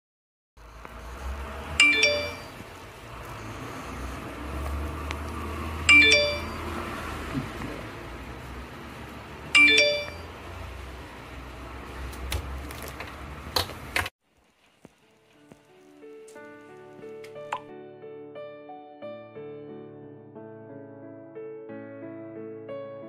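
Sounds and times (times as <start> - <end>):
phone notification chime: 1.8 - 2.6, 5.9 - 6.7, 9.6 - 10.3.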